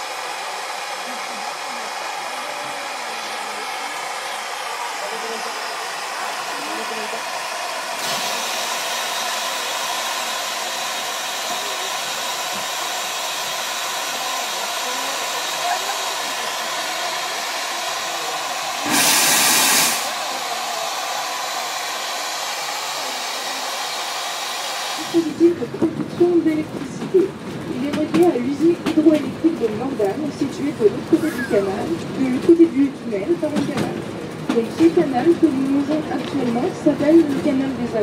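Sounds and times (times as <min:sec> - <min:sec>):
loud blast of steam: 0:00.0 - 0:25.4
steam locomotive hissing: 0:00.0 - 0:25.8.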